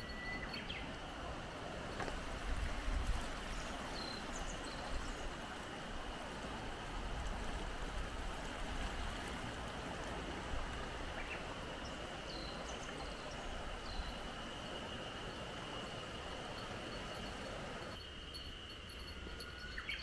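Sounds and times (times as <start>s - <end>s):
thin steady high tone: 0.0s - 2.2s, 11.3s - 20.0s
river rushing over rapids: 0.0s - 18.0s
faint bird chirps: 18.3s - 20.0s.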